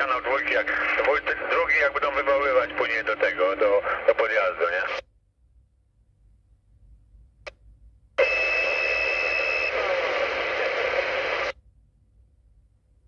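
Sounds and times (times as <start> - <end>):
loud radio static: 0.0 - 5.0, 9.6 - 11.5.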